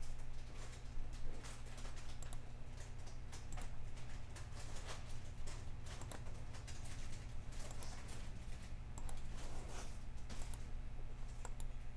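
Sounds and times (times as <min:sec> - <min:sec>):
low electrical hum: 0:00.0 - 0:11.9
computer mouse clicks: 0:05.9 - 0:06.2, 0:09.0 - 0:09.3, 0:10.3 - 0:10.6, 0:11.4 - 0:11.7.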